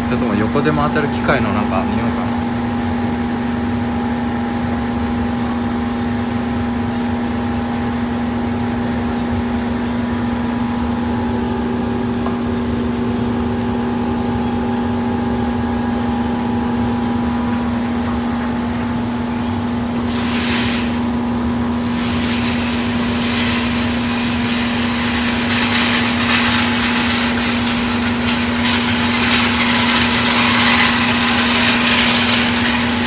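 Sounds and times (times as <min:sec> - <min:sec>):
workshop machine humming: 0:00.0 - 0:33.0.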